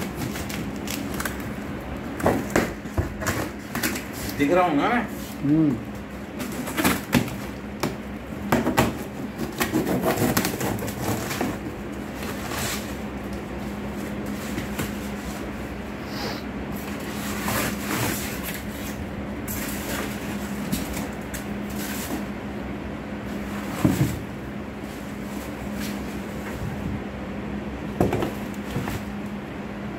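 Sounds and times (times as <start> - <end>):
plastic wrapping rustling: 0.0 - 5.4
steady low hum: 0.0 - 29.9
box cutter scraping tape: 8.8 - 11.7.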